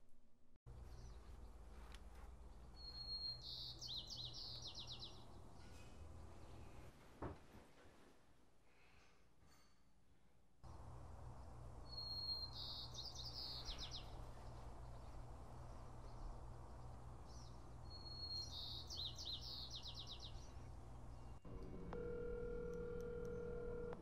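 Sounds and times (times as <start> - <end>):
songbird chirping: 0.7 - 6.8, 10.7 - 24.0
faint steady hum: 10.7 - 24.0
phone ringback tone: 22.0 - 24.0.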